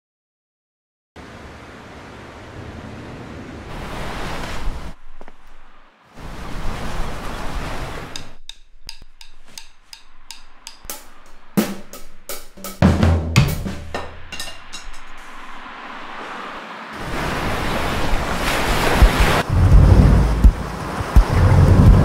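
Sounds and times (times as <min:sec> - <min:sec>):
ocean surf rushing: 0:01.2 - 0:08.4, 0:13.2 - 0:22.0
drum kit hits: 0:10.6 - 0:15.2, 0:19.0 - 0:22.0
bass drum thumps: 0:11.6 - 0:14.2, 0:19.0 - 0:22.0.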